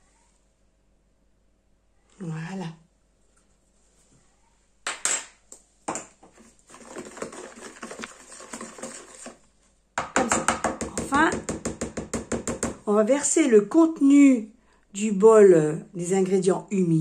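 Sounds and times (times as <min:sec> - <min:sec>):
wooden spoon stirring batter: 0:05.9 - 0:12.8.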